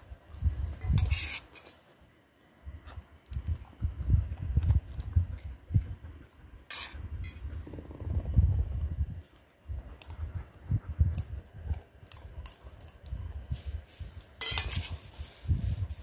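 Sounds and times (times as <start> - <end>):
phone brushing fur: 0.8 - 1.9.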